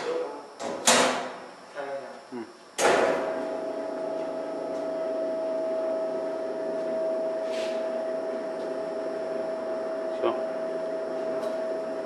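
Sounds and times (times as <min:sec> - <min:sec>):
electric motor humming: 0:03.5 - 0:12.0.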